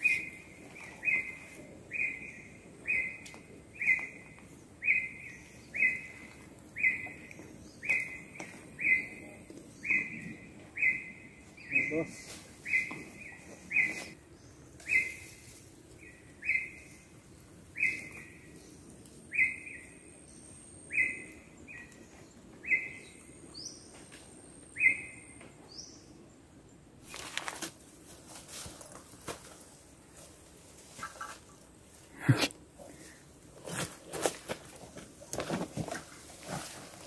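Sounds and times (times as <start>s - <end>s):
footsteps rustling leaves and twigs: 27.0s - 31.6s, 33.5s - 37.0s.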